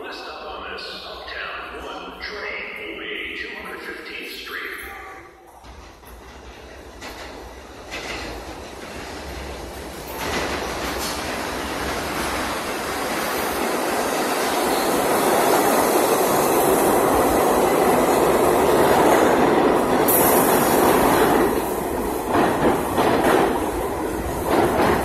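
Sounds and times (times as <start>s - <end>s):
subway train rumbling past: 0.0s - 25.0s
wheels clicking over rail joints: 5.6s - 12.4s.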